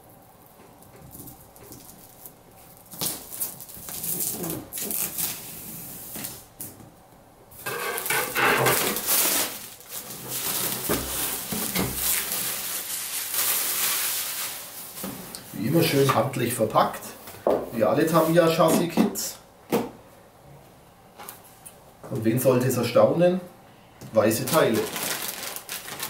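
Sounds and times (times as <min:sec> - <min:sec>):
plastic wrap crinkling: 0:00.0 - 0:06.5, 0:07.6 - 0:16.1, 0:24.2 - 0:26.0
blade slicing plastic film: 0:02.9 - 0:05.4, 0:07.6 - 0:14.7, 0:24.5 - 0:26.0.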